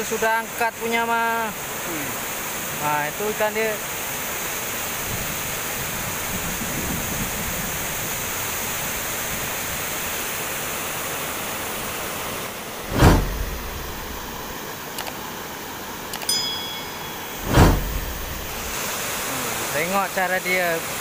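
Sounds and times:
loud whoosh: 12.8 - 14.6, 17.2 - 18.9.

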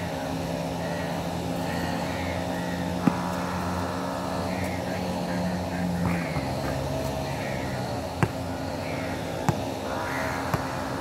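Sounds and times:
motor droning: 0.0 - 11.0
basketball bounce on court: 3.0 - 3.5, 6.0 - 6.6, 8.2 - 8.4, 9.4 - 9.7, 10.4 - 10.8.

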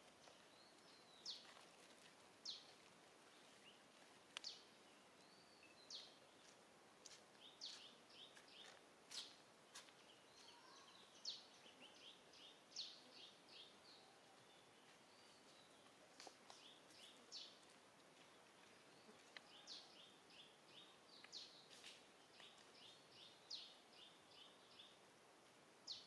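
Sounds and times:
soft bird twittering: 7.5 - 15.9.

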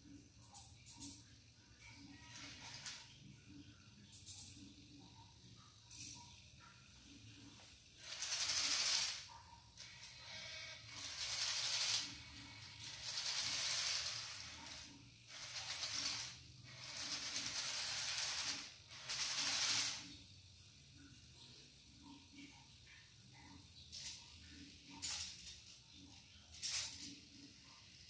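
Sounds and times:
toy tank motors whirring: 2.1 - 3.2, 7.9 - 20.3, 23.9 - 28.0.

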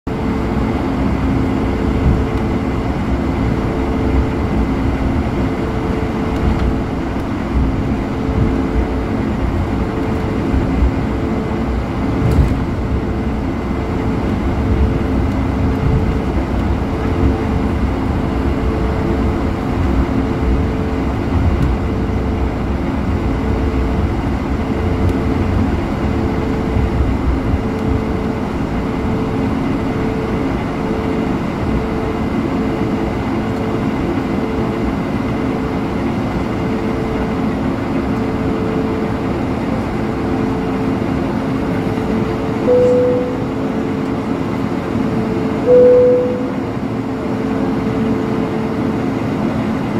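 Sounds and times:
wheels rumbling on pavement: 0.1 - 45.5
jet engines humming: 0.1 - 49.9
steady mid-pitched tone: 42.0 - 48.1
pulsing high tone: 42.6 - 44.0, 45.0 - 47.2.

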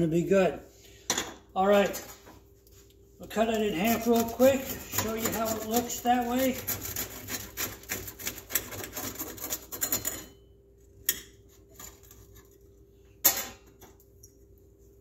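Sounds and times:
knife sawing through bread: 3.4 - 9.9
knife clinking on metal: 9.7 - 10.4.

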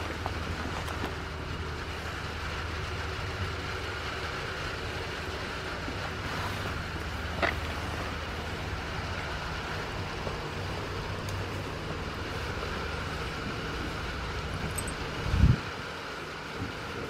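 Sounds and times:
background rumble and hiss: 0.0 - 17.0.

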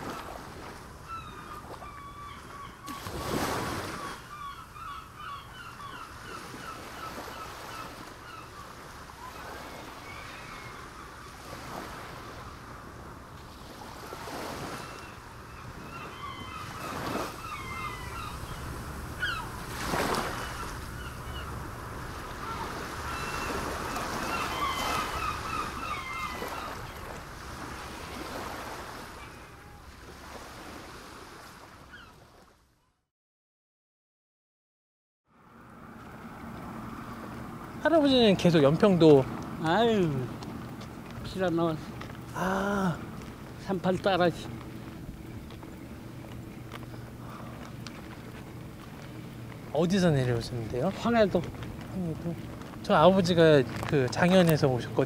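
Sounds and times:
sea waves washing onto shore: 0.0 - 4.5, 5.8 - 32.5, 35.8 - 55.0
wind: 0.0 - 33.1, 35.2 - 55.0
birds chirping: 1.0 - 12.9, 13.8 - 30.2, 31.8 - 32.2, 35.9 - 55.0.

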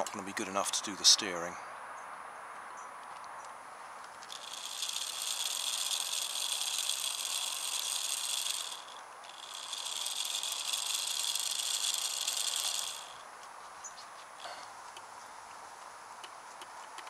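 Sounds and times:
small electric motor whirring: 4.2 - 13.3.

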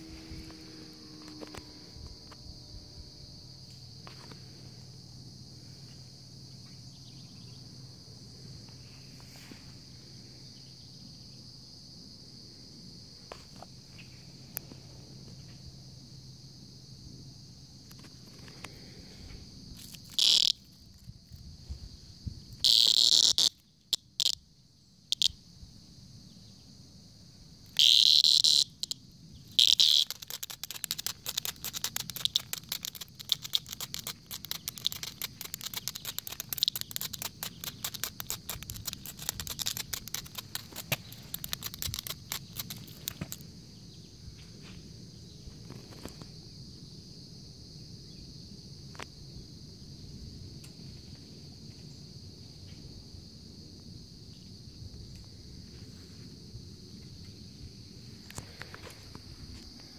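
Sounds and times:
cicada buzzing squawks: 0.0 - 4.4, 19.8 - 21.2, 22.4 - 25.5, 27.6 - 44.2
insects droning: 0.0 - 59.9
wings rattling on concrete: 27.8 - 43.4.

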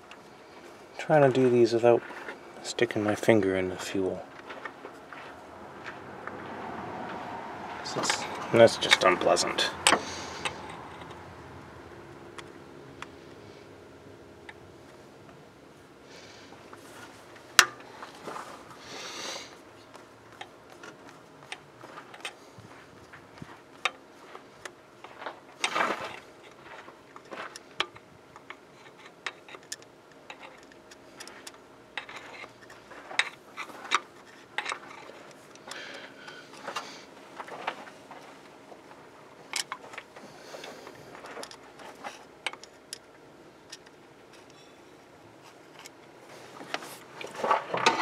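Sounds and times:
screwdriver scraping on metal: 32.0 - 35.4.

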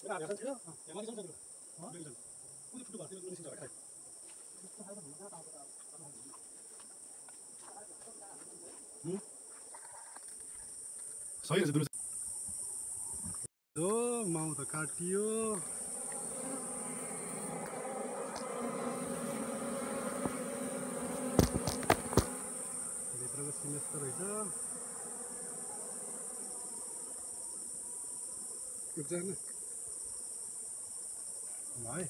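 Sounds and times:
honeybees buzzing: 14.1 - 31.5
sharp knocks: 21.3 - 22.4.

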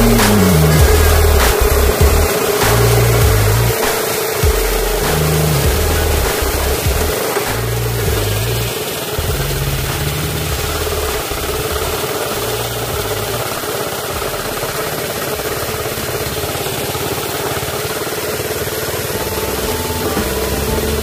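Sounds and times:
background music: 0.0 - 13.4, 19.1 - 21.0
small petrol engine running: 0.0 - 21.0.

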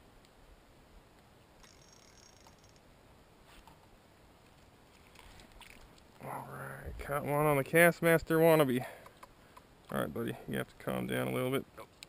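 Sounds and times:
faint clicks: 9.0 - 10.0.

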